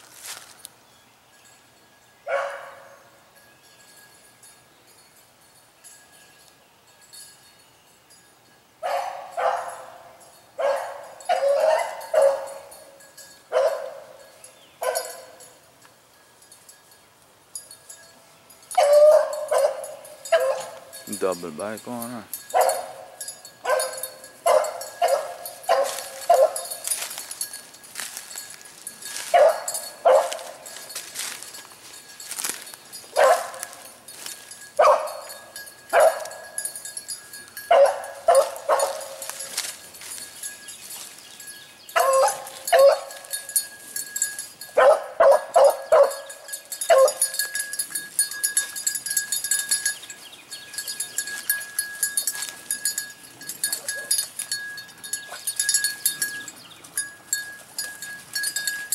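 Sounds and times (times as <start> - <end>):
hound baying: 8.8 - 14.2, 14.8 - 15.6, 18.7 - 21.1, 22.5 - 27.4, 29.2 - 30.9, 33.1 - 33.9, 34.8 - 36.8, 37.6 - 39.6, 42.0 - 43.4, 44.7 - 49.4, 50.9 - 54.4.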